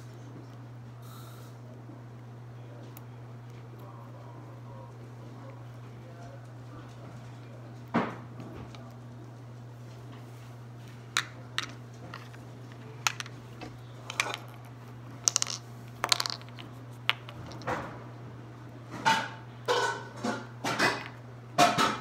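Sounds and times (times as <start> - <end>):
steady low hum: 0.0 - 22.0
plastic toys clicking and tapping: 11.2 - 12.4, 13.0 - 13.4, 14.0 - 14.6, 15.3 - 17.8.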